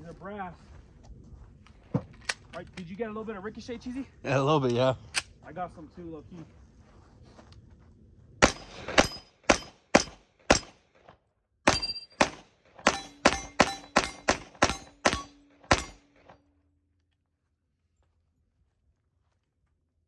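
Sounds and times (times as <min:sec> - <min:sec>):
pistol gunshots: 0:08.4 - 0:10.8, 0:11.7 - 0:16.2.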